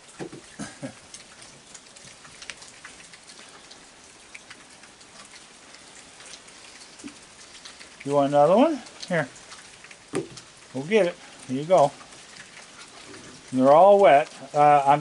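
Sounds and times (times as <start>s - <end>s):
heavy rain falling: 0.0s - 15.0s
raindrops ticking on surfaces: 0.0s - 15.0s.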